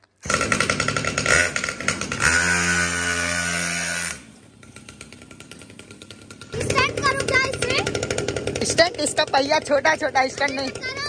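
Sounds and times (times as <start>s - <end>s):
small motorbike engine revving: 0.2s - 11.0s.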